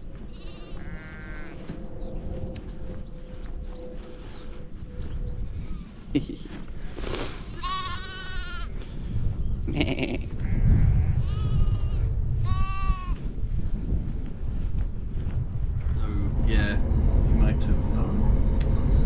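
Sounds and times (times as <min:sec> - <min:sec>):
lambs bleating: 0:00.4 - 0:01.6, 0:07.6 - 0:08.7, 0:09.7 - 0:13.2
low steady rumble: 0:10.7 - 0:19.0.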